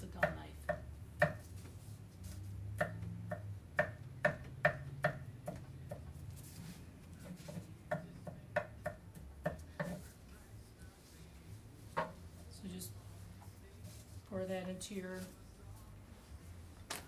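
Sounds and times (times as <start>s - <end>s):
knife chopping on wooden board: 0.2s - 1.5s, 2.8s - 6.1s.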